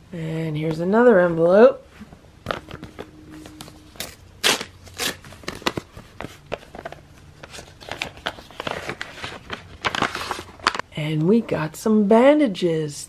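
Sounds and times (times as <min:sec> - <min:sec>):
paper envelope tearing: 0:04.0 - 0:05.9, 0:07.4 - 0:10.8.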